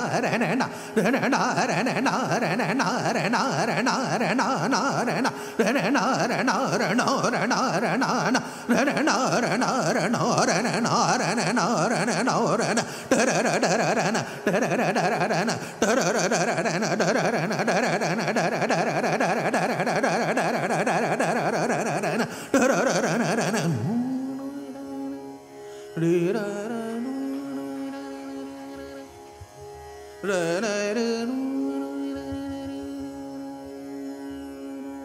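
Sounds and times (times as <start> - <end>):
man singing: 0.0 - 25.2, 26.0 - 29.1, 30.2 - 33.8
tanpura drone: 0.0 - 35.0.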